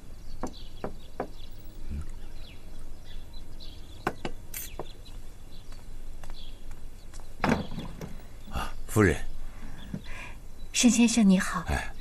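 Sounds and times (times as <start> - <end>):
faint bird chirps: 0.0 - 12.0
knocks on wooden door: 0.4 - 1.4.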